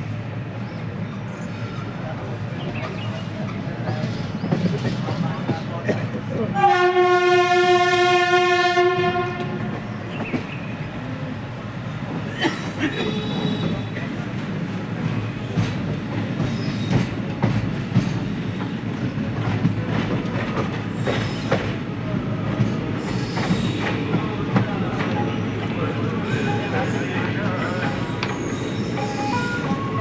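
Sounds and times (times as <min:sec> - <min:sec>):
train wheels rumbling on rails: 0:00.0 - 0:30.0
rail joint clicks: 0:00.8 - 0:06.5, 0:09.2 - 0:10.9, 0:11.9 - 0:30.0
train horn: 0:06.5 - 0:09.7.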